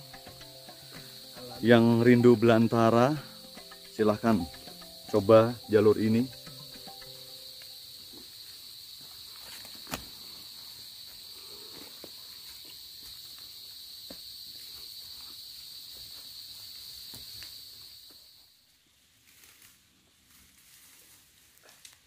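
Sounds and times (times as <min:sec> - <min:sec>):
high-pitched insect drone: 0:00.0 - 0:18.6
footsteps on a trail: 0:07.4 - 0:18.3.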